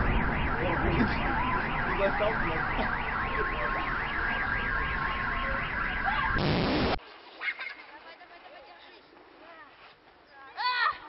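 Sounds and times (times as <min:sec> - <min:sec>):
car alarm wailing: 0:00.0 - 0:06.9.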